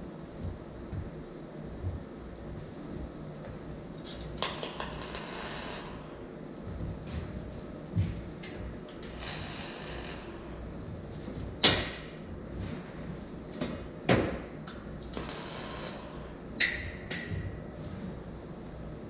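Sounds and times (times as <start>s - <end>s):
arc welding hiss: 4.4s - 6.1s, 9.0s - 10.6s, 15.2s - 16.4s.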